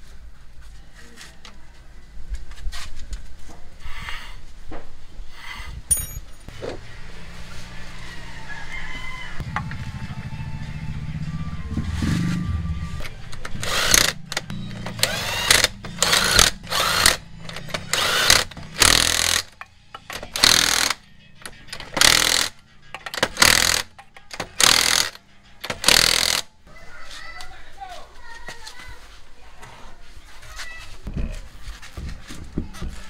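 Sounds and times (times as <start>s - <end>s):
impact wrench rattling bursts: 13.4s - 26.5s.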